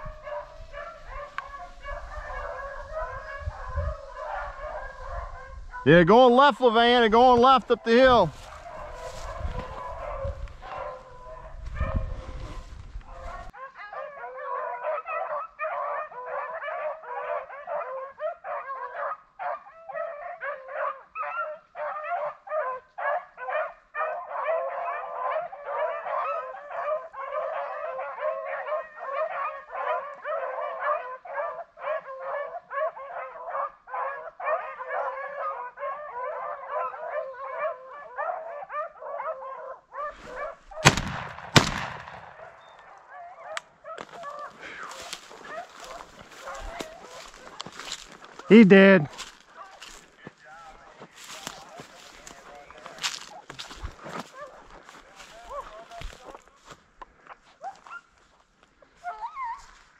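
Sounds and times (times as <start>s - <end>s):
pack of hounds baying: 0.0s - 50.1s, 50.7s - 58.2s, 58.8s - 59.9s
shotgun shot: 40.8s - 42.6s.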